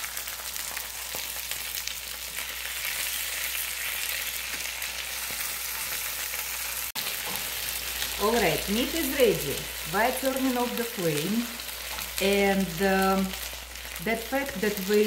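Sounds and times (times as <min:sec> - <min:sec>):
meat sizzling in hot oil: 0:00.0 - 0:15.0.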